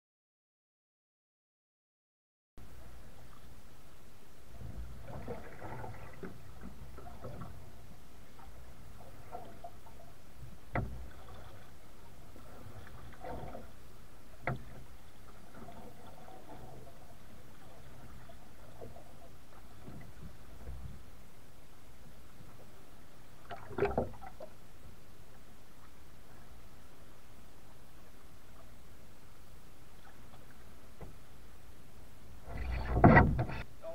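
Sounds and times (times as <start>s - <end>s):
paddle splashing in water: 4.5s - 13.8s, 14.4s - 20.9s, 23.4s - 24.5s.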